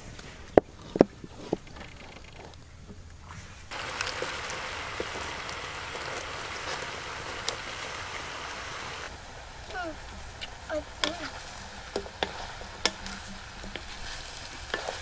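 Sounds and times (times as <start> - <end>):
meat sizzling in a wok: 3.7 - 15.0.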